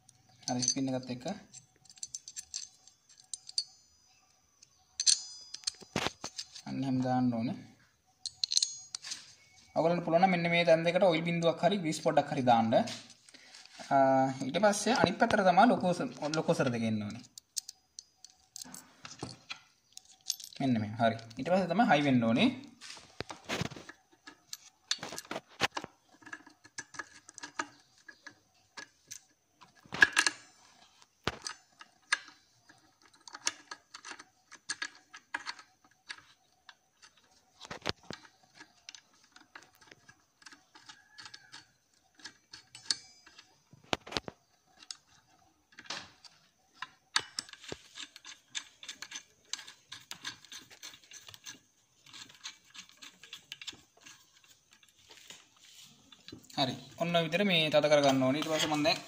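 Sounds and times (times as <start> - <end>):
small metal clicks and clinks: 0.0 - 6.7, 8.2 - 9.6, 15.2 - 21.9, 23.2 - 55.1.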